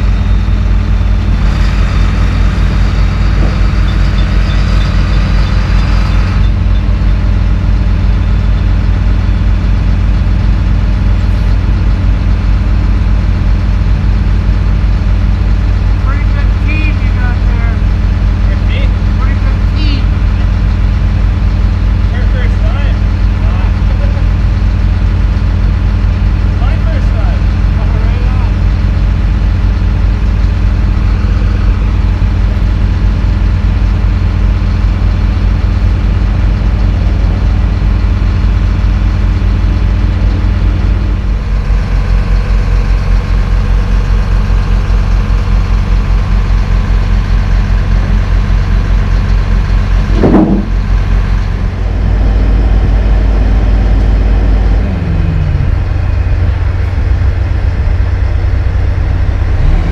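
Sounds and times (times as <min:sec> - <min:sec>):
diesel engine idling: 0:00.0 - 0:59.9
short loud sound: 0:50.2 - 0:50.9.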